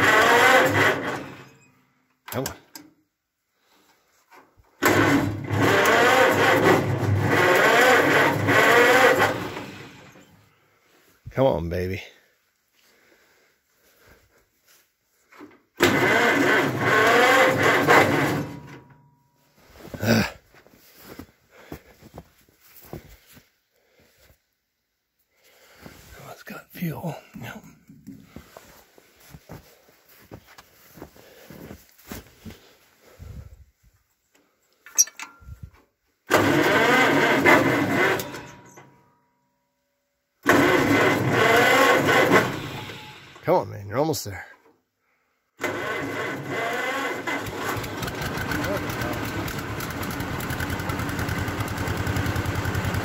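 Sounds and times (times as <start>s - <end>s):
engine cranking without starting: 0.0s - 1.7s, 4.8s - 10.4s, 15.8s - 19.1s, 34.8s - 39.0s, 40.4s - 43.4s, 45.6s - 53.0s.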